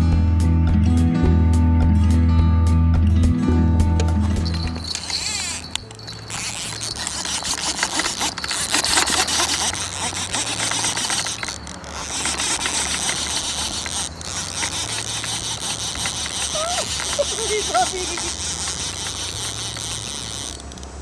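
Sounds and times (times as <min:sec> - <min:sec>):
fishing reel clicking: 0:04.2 - 0:21.0.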